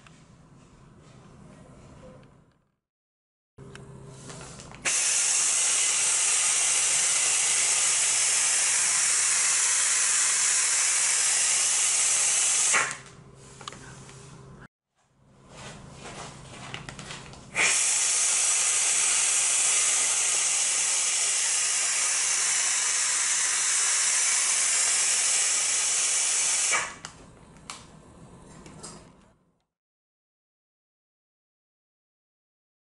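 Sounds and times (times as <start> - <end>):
vacuum ejector hissing: 4.8 - 13.0, 17.6 - 27.0.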